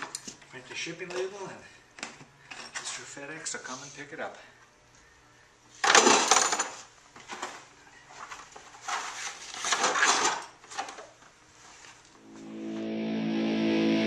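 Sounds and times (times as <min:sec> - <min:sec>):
tools clattering into plastic crate: 0:05.8 - 0:07.6, 0:09.6 - 0:11.0.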